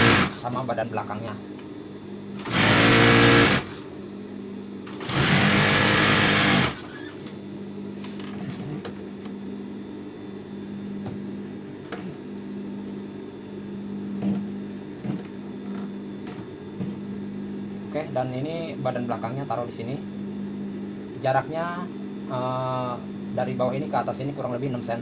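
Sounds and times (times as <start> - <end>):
sewing machine stitching: 0.0 - 0.4, 2.4 - 3.7, 4.9 - 7.0.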